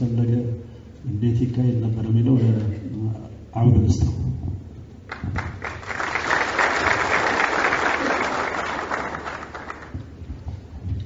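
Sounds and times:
audience clapping: 0:05.1 - 0:10.2.

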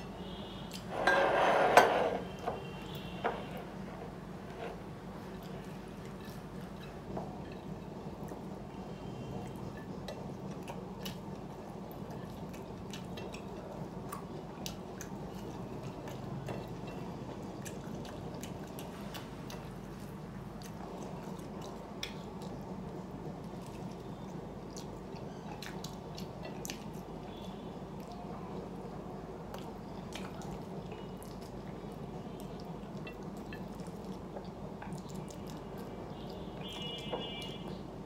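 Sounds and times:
person chewing: 0:29.5 - 0:37.8.

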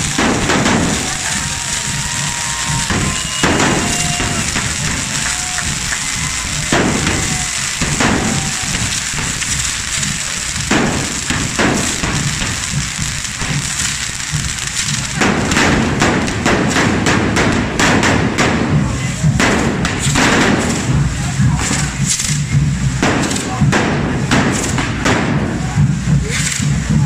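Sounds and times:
firework bangs and cracks: 0:00.0 - 0:27.0
fireworks hissing: 0:00.0 - 0:27.0.

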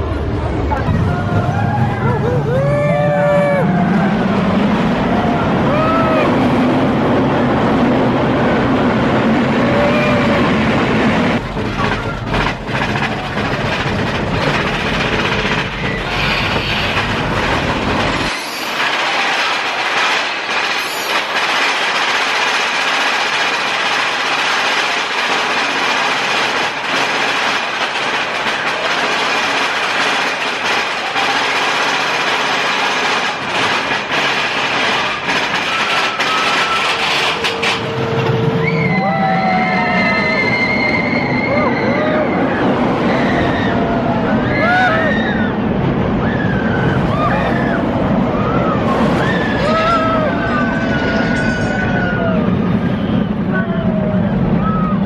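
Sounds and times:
heavy low rumble: 0:00.0 - 0:18.3
roller coaster rattling on track: 0:00.0 - 0:55.0.

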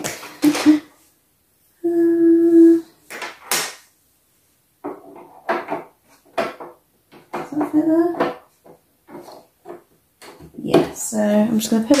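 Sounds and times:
person humming: 0:01.8 - 0:03.0.

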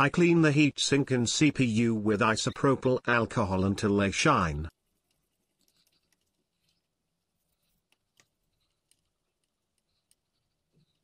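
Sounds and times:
soft ticks: 0:07.9 - 0:11.0.

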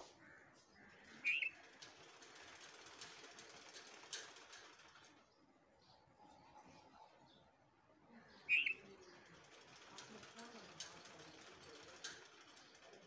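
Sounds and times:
bird chirp: 0:00.0 - 0:01.8, 0:05.2 - 0:09.6.

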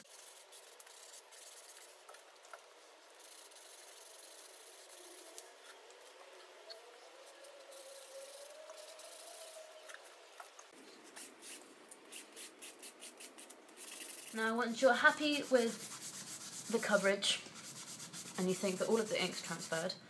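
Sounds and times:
cloth scrubbing on paper: 0:15.1 - 0:19.9.

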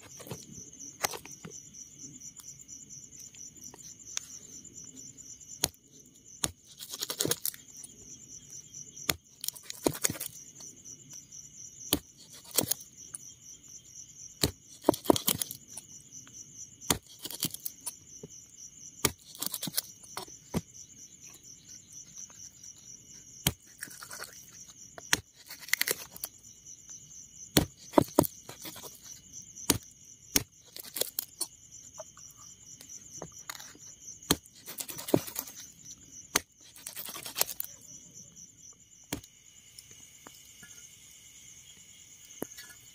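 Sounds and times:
crickets chirring: 0:00.0 - 0:42.9
knife chopping meat and bone: 0:06.4 - 0:07.6, 0:09.0 - 0:10.4, 0:11.9 - 0:12.8, 0:14.4 - 0:15.6, 0:16.8 - 0:18.0, 0:19.0 - 0:20.7, 0:25.0 - 0:26.3, 0:27.5 - 0:31.4, 0:34.2 - 0:35.6.

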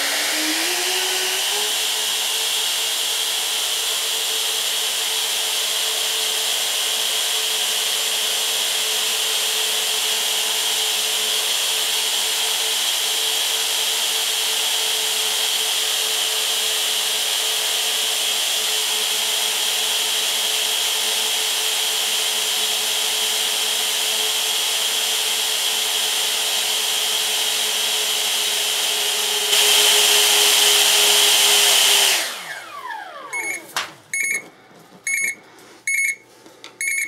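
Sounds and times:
cooling fan whining: 0:00.0 - 0:02.1, 0:28.7 - 0:37.0
electronic alarm beeping: 0:33.4 - 0:34.5, 0:35.1 - 0:36.2, 0:36.8 - 0:37.0.

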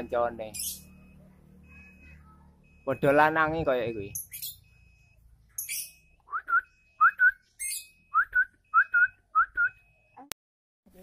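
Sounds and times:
bird shrill chirps: 0:00.5 - 0:01.0, 0:04.0 - 0:04.7, 0:05.5 - 0:09.0.

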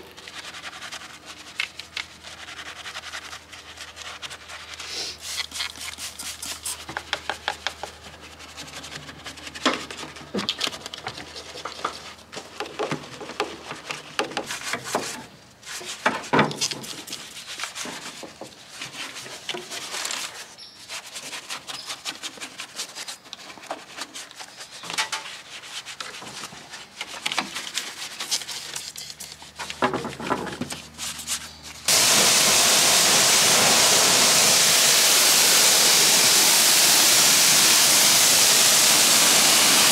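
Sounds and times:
brush scrubbing: 0:00.0 - 0:10.3, 0:16.8 - 0:29.8, 0:30.7 - 0:39.9
pressure washer spraying water: 0:31.9 - 0:39.9.

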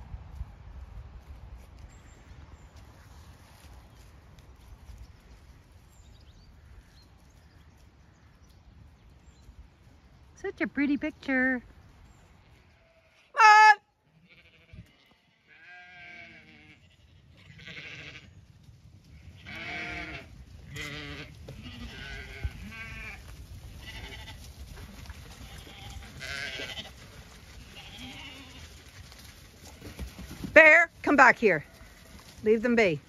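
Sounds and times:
sheep bleating: 0:12.7 - 0:18.4, 0:19.2 - 0:24.5, 0:25.4 - 0:27.0, 0:27.6 - 0:28.8.

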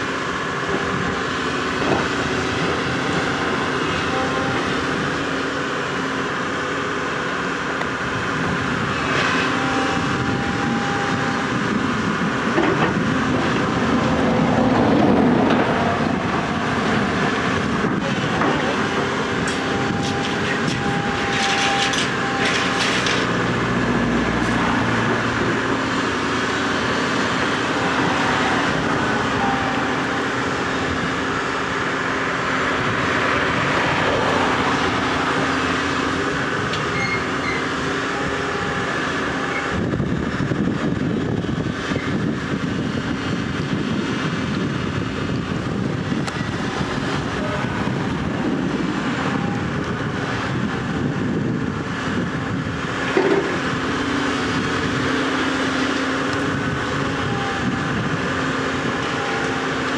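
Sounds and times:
excavator diesel and hydraulics: 0:00.0 - 0:59.9
sharp metallic screeches: 0:36.9 - 0:37.7
thin squeals: 0:36.9 - 0:37.7.

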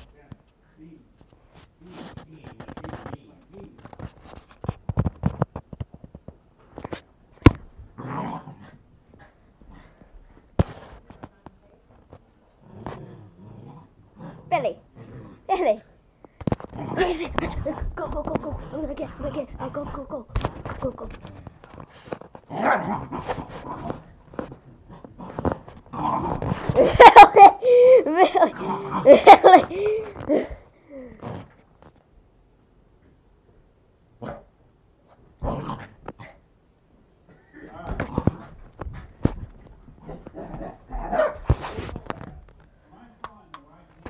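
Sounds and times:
dog growling and barking: 0:07.9 - 0:08.8, 0:12.6 - 0:15.5, 0:16.6 - 0:20.3, 0:22.4 - 0:27.6, 0:28.2 - 0:29.6, 0:34.2 - 0:34.5, 0:35.4 - 0:36.4, 0:37.6 - 0:39.3, 0:40.0 - 0:41.7
rustling: 0:16.2 - 0:27.1, 0:37.8 - 0:42.9.

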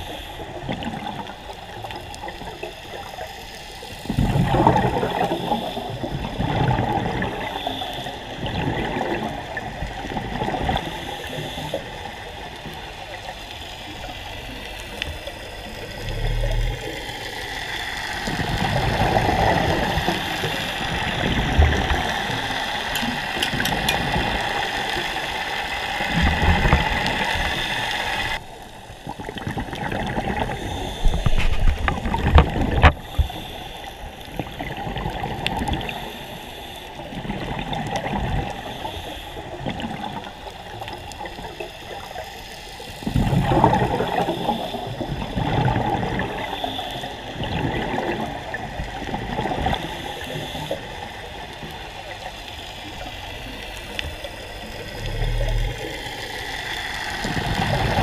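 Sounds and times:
water sloshing and gurgling: 0:00.0 - 0:58.0.

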